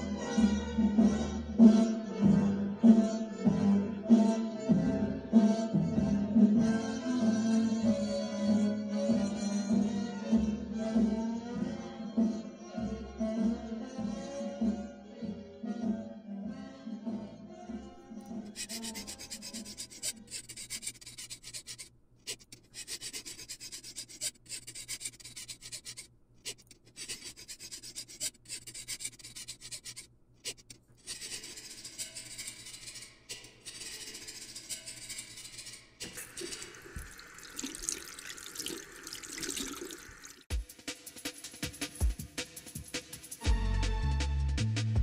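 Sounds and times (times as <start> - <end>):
brush scrubbing metal: 18.5 - 38.0
liquid sloshing: 36.1 - 40.5.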